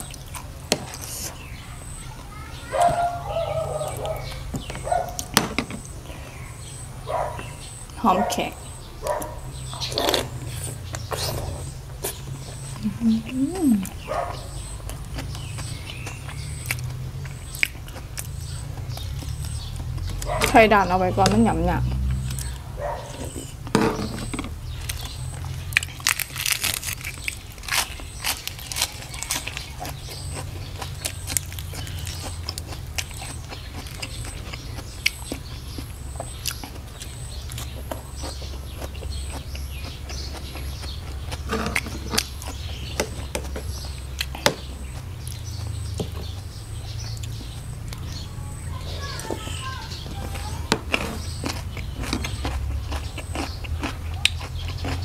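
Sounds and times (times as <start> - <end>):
chewing: 9.0 - 23.6, 24.5 - 55.0
lettuce crunching: 24.2 - 48.2, 49.0 - 55.0.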